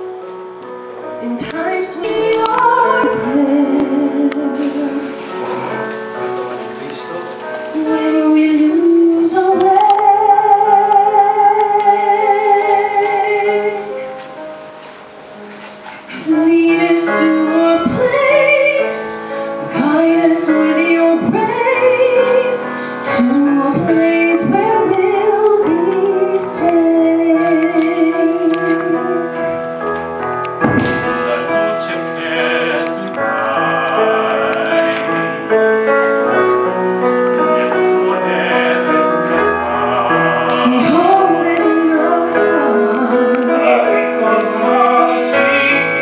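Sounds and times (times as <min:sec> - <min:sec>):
instrumental backing music: 0:00.0 - 0:46.0
woman singing into a microphone: 0:01.2 - 0:05.2, 0:07.7 - 0:14.0, 0:16.1 - 0:29.4, 0:40.5 - 0:45.4
man singing: 0:31.0 - 0:46.0.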